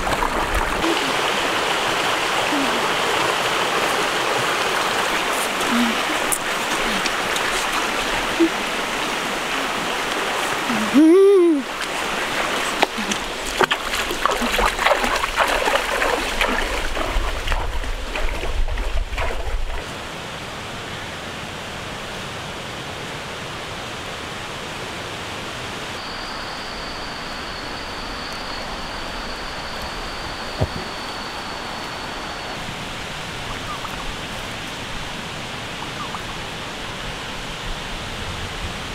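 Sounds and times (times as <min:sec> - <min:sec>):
rocky stream running: 0:00.0 - 0:38.9
steady hiss: 0:25.3 - 0:38.9
thin high whine: 0:25.9 - 0:33.5.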